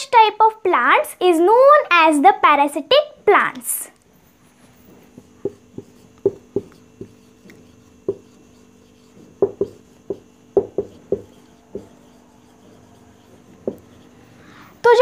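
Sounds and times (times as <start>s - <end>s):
marker pen squeaking on whiteboard: 4.2s - 15.0s.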